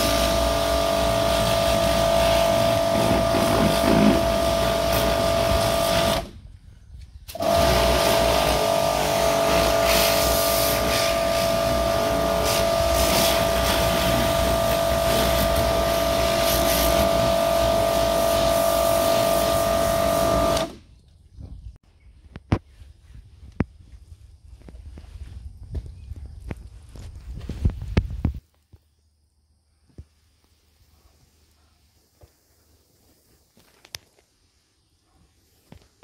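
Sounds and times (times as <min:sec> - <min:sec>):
spray jet hissing on plastic: 0:00.0 - 0:06.3, 0:07.3 - 0:20.7
pressure washer motor whine: 0:00.0 - 0:06.4, 0:07.3 - 0:20.8.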